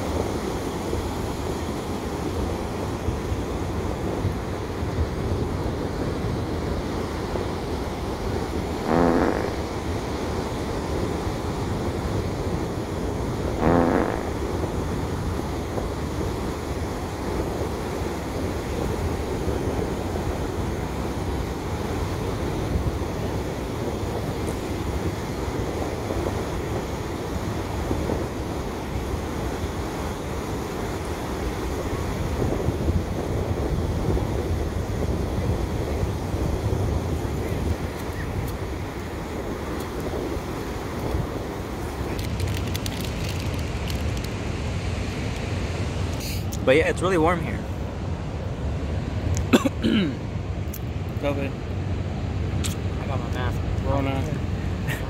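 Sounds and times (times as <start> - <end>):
wind on microphone: 0.0 - 47.8
ocean surf breaking: 0.0 - 55.0
short low-pitched sounds: 8.8 - 9.7, 13.6 - 14.4.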